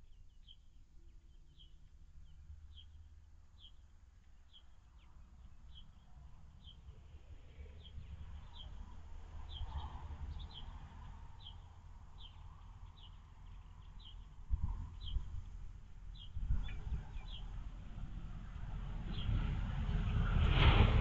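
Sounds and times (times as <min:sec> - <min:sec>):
small bird chirping: 0:00.0 - 0:07.0, 0:07.6 - 0:17.6
steady low rumble: 0:12.9 - 0:21.0.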